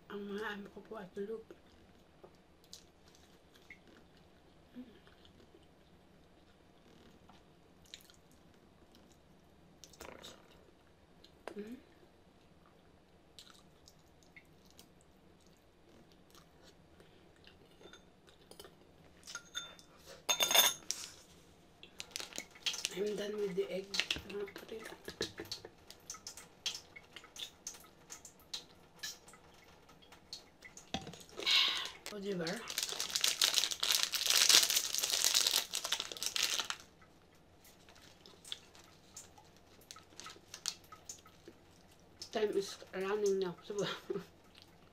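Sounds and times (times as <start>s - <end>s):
chewing and mouth sounds: 1.5s - 11.6s, 12.5s - 20.0s, 21.8s - 23.0s, 23.9s - 42.4s, 44.3s - 44.9s
cutlery clatter: 19.3s - 20.9s
cutlery clinking against ceramic bowl: 19.3s - 20.9s
plastic wrapper tearing and crinkling: 21.9s - 23.2s, 31.2s - 36.9s, 39.9s - 40.8s.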